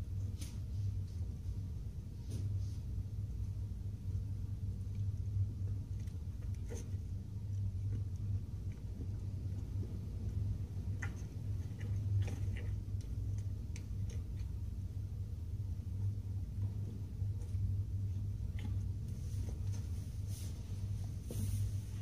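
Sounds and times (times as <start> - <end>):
steady low hum: 0.0 - 22.0
giraffe munching greens: 5.7 - 14.9.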